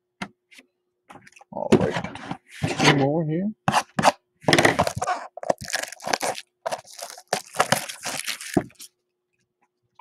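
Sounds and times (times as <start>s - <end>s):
cardboard box being torn open: 4.7s - 8.8s.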